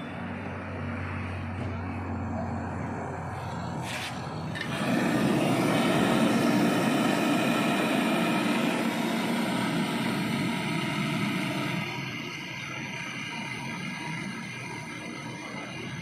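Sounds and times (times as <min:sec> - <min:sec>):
gas torch burning: 0:02.7 - 0:16.0.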